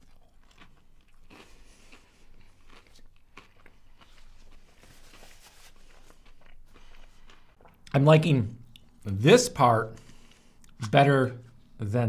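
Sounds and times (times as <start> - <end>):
person chewing crunchy food: 0.0 - 8.0
paper napkin rustling: 4.7 - 6.2.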